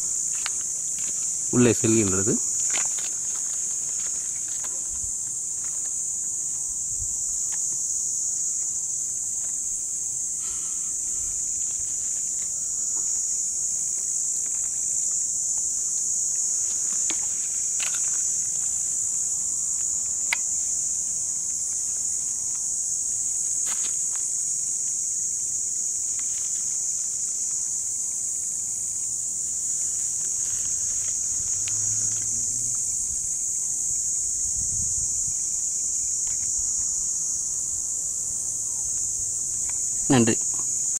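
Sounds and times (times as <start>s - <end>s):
insects buzzing: 0.0s - 40.9s.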